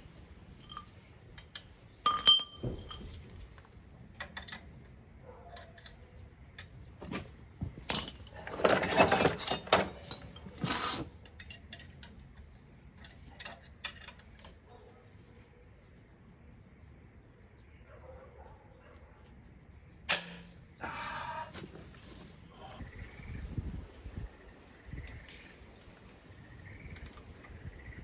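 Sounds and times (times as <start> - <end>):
metal tools clinking and clattering: 0.6 - 14.8.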